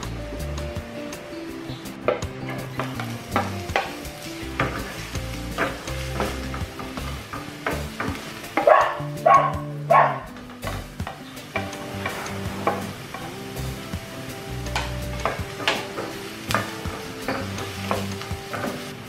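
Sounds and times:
onion and garlic sizzling in oil: 0.0s - 19.0s
quiet background music: 0.0s - 19.0s
wooden spatula scraping and stirring: 2.6s - 8.6s, 11.5s - 13.2s.

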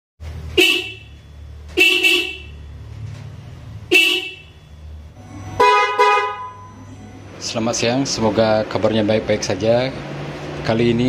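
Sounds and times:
low steady hum: 0.2s - 9.4s
car horn honking: 0.5s - 2.8s, 3.9s - 8.2s
louder fuller car horns: 0.6s - 1.2s, 1.8s - 2.8s, 3.9s - 4.6s, 5.2s - 7.4s.

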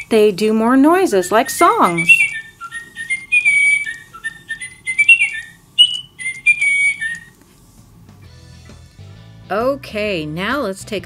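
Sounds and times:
toy bird whistling melody: 1.4s - 7.3s.

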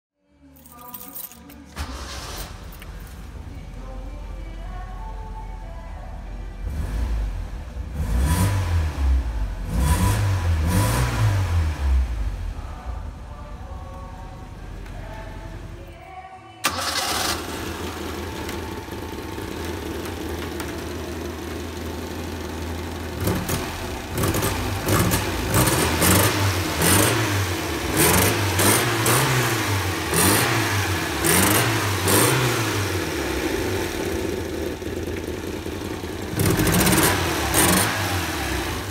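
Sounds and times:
car engine idling: 1.4s - 15.9s, 16.6s - 38.9s
engine revving: 6.6s - 12.4s, 23.1s - 38.9s.

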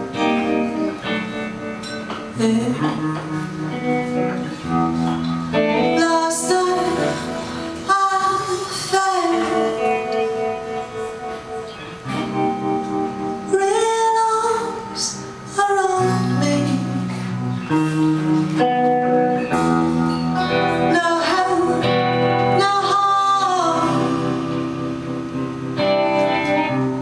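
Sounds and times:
woman singing a slow ballad: 2.2s - 3.9s, 5.6s - 10.9s, 13.4s - 17.4s, 20.6s - 24.8s.

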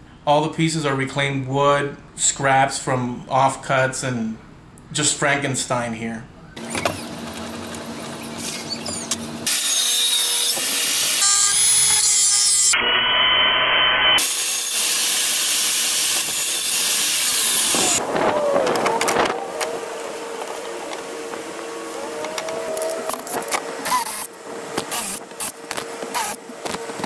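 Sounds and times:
table saw cutting: 6.6s - 13.5s, 14.2s - 27.0s
steady hum: 12.8s - 27.0s
wood rubbing and scraping: 17.1s - 27.0s.

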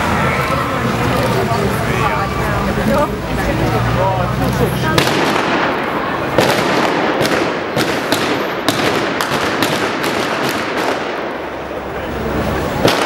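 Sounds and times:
crowd and street noise: 0.0s - 13.0s
blank gunshots: 5.0s - 11.4s, 12.8s - 13.0s.

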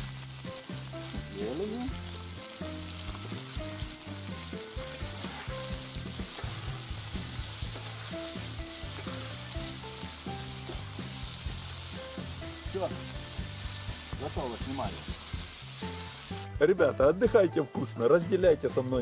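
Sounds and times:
food sizzling in a pan: 0.0s - 16.6s
spatula scraping a pan: 4.8s - 11.3s.

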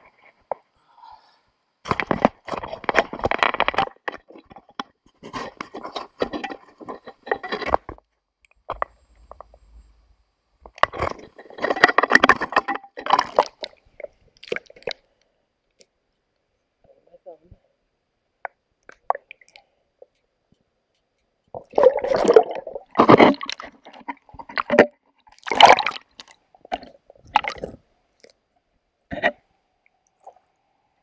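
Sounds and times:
scraping and crunching on rocks: 1.9s - 8.0s, 10.6s - 14.9s, 21.6s - 27.8s.

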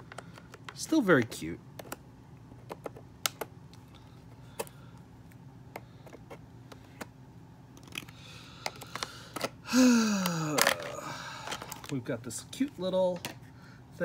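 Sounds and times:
plastic packing rustling: 10.6s - 12.1s.

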